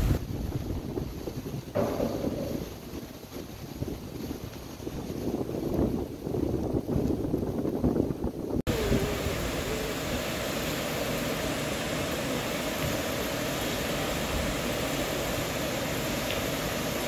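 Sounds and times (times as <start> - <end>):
waterfall pouring down rock: 8.7 - 17.0.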